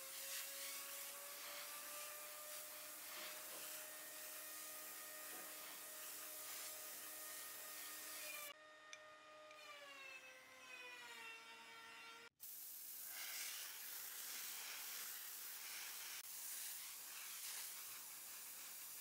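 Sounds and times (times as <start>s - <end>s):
spray gun hissing: 0.0s - 8.2s, 12.4s - 19.0s.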